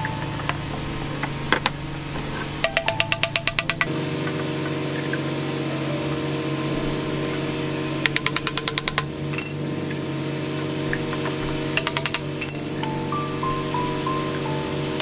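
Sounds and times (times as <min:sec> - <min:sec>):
background music: 0:00.0 - 0:08.1, 0:12.5 - 0:15.0
hammer tapping on plastic pipe: 0:02.6 - 0:03.9.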